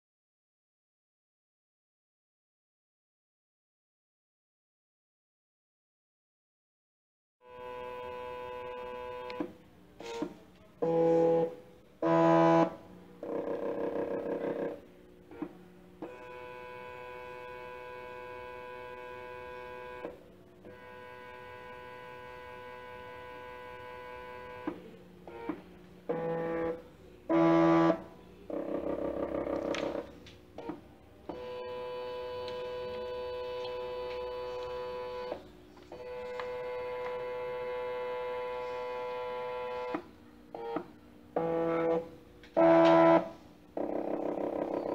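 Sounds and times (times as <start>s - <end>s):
stepper motor humming: 10.8s - 44.9s.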